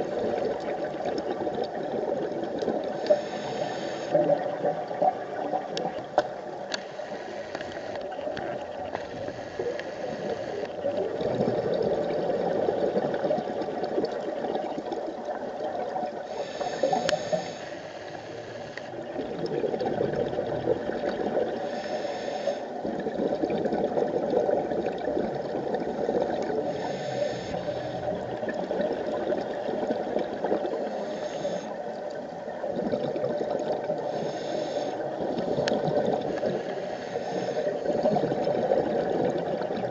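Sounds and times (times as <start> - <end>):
regulator inhalation hiss: 3.0 - 4.2, 6.8 - 8.0, 9.1 - 10.7, 16.2 - 19.0, 21.6 - 22.8, 26.6 - 28.1, 30.8 - 31.8, 34.0 - 35.2, 36.3 - 37.8
bubbling scuba exhalations: 10.1 - 15.0, 18.9 - 21.7, 22.8 - 30.9, 32.6 - 36.7, 37.6 - 39.9.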